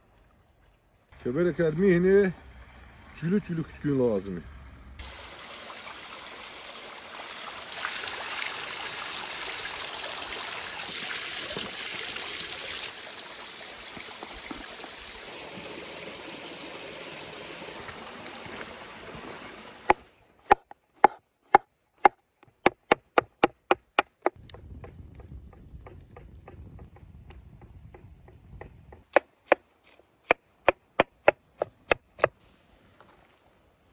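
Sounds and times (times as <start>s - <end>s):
mushrooms being rinsed: 5.0s - 20.0s
water splashing over rock: 17.6s - 20.1s
sharp dry knocks: 19.9s - 29.6s, 30.3s - 32.4s
wood fire crackling: 24.3s - 26.9s.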